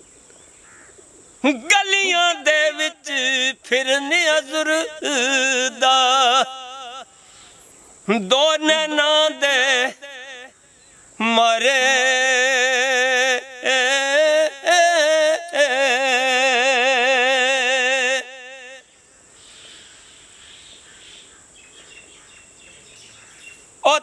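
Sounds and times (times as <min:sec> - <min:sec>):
high insect trill: 0:00.0 - 0:24.0
man singing unaccompanied: 0:01.4 - 0:07.4, 0:08.0 - 0:10.6, 0:11.2 - 0:19.0, 0:23.8 - 0:24.0
faint bird chirps: 0:18.8 - 0:23.8.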